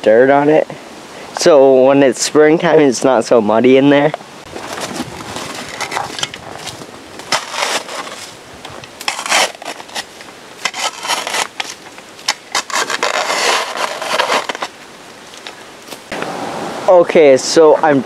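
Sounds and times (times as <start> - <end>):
shovel scraping snow: 4.6 - 14.7.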